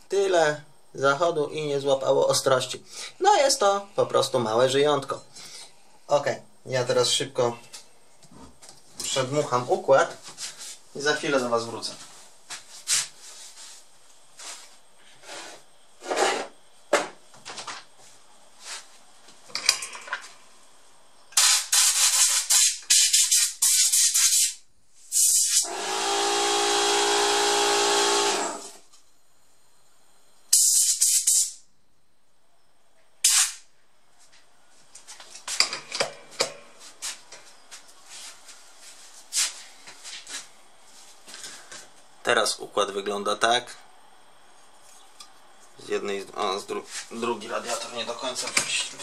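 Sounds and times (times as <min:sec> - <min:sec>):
compressed air blasts: 0:21.4 - 0:27.4, 0:30.5 - 0:31.6, 0:33.2 - 0:33.7.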